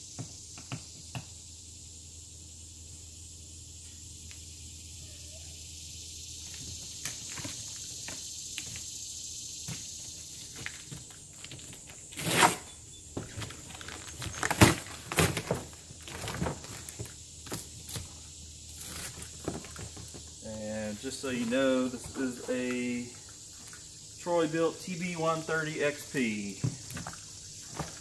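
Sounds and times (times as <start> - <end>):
faint hiss: 0.0 - 12.8, 16.3 - 28.0
cardboard ripping: 12.1 - 12.7, 13.3 - 18.1, 18.8 - 19.7.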